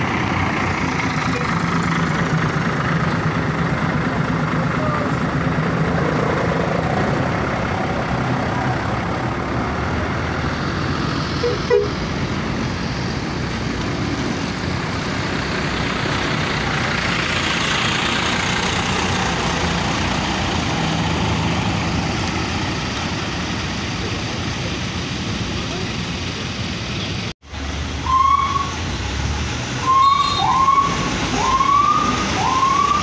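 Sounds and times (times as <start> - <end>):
diesel bus engines idling: 0.0 - 33.0
bus horn toot: 11.4 - 12.0, 29.8 - 31.0.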